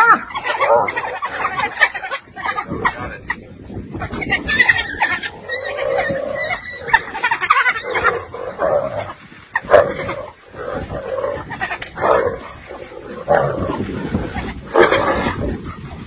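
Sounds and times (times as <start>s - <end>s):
hyena and wild dogs fighting: 0.0s - 16.0s
loud sharp cries: 4.0s - 8.3s.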